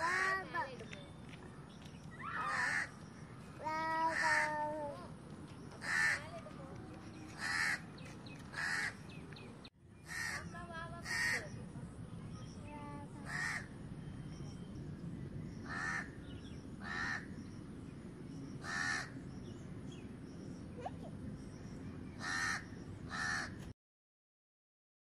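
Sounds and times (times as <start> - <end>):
crow cawing: 2.4 - 2.9, 4.0 - 4.6, 5.8 - 6.2, 7.4 - 7.8, 8.5 - 9.0, 10.1 - 10.4, 11.0 - 11.4, 13.3 - 13.7, 15.7 - 16.1, 16.8 - 17.3, 18.6 - 19.1, 22.2 - 23.6.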